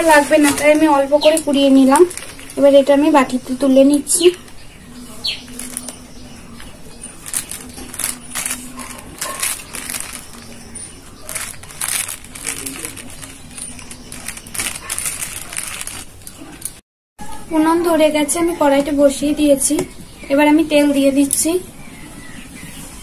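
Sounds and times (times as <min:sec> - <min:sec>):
plastic sheet crinkling: 0:00.0 - 0:04.6, 0:05.2 - 0:16.8.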